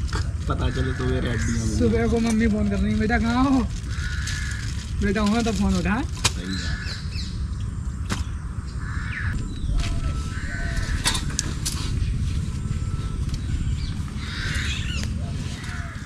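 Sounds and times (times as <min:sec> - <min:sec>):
steady low rumble: 0:00.0 - 0:16.0
crows cawing: 0:00.4 - 0:02.4, 0:03.4 - 0:05.5, 0:06.4 - 0:07.4, 0:08.4 - 0:11.6, 0:13.8 - 0:16.0.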